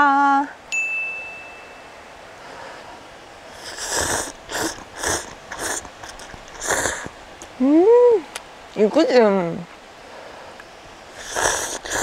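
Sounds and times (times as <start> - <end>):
person slurping noodles: 3.6 - 7.1, 11.1 - 12.0.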